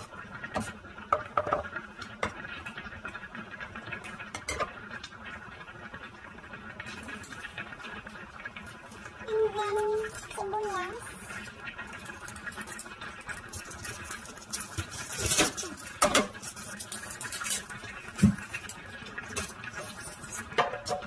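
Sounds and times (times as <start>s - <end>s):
onion skin rustling and crackling: 12.0s - 20.6s.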